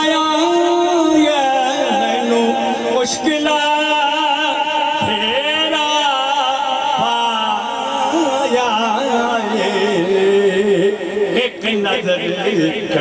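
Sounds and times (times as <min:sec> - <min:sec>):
devotional singing voice: 0:00.0 - 0:13.0.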